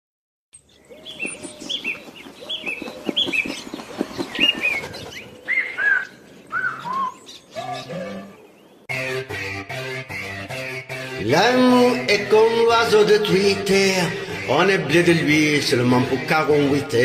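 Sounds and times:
bird chirps: 0.6 - 8.9.

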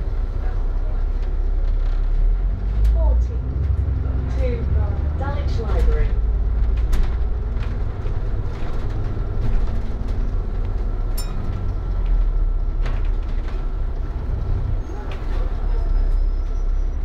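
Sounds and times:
bus engine and road rumble: 0.0 - 17.0
bodywork knocks and rattles: 6.5 - 14.0.

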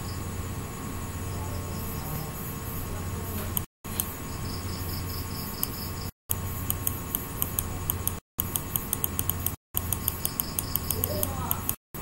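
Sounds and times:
mains hum: 0.0 - 12.0
mouse scroll wheel ticks: 6.6 - 11.8.

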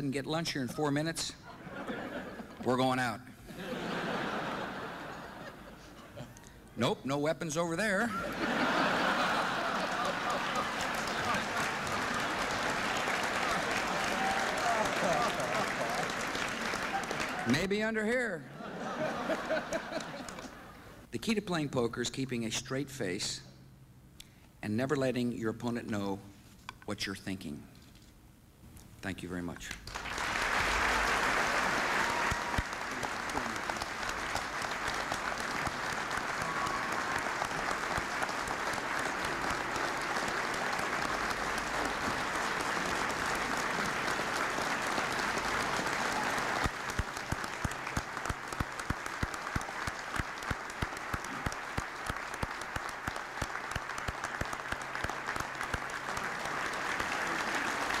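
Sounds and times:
large audience applauding: 8.3 - 17.7, 18.8 - 20.6, 29.8 - 58.0.

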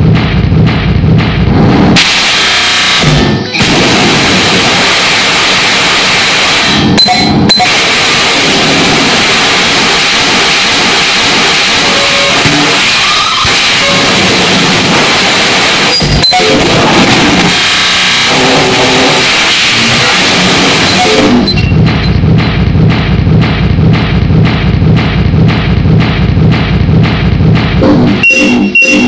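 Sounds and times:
harsh digital noise music: 0.0 - 29.0
short stray tones: 1.8 - 29.0.

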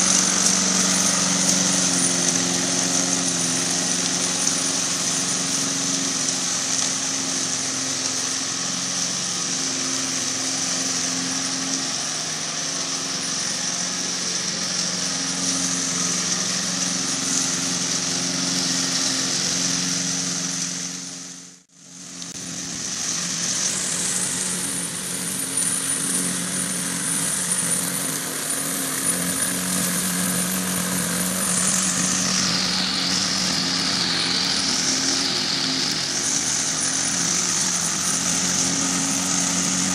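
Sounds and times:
lawn mower motor hum: 0.0 - 39.9
high-pitched whine: 22.3 - 39.9.

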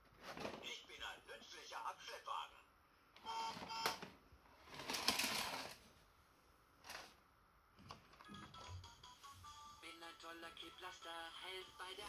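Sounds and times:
plastic scrape: 4.6 - 5.8
hard plastic rattling: 4.7 - 5.8.

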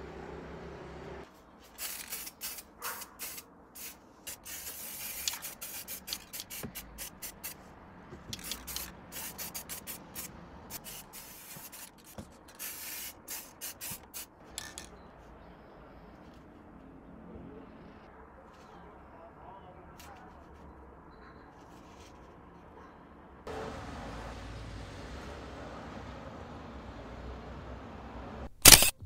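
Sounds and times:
spray can hissing bursts: 1.8 - 7.6, 8.3 - 14.3.

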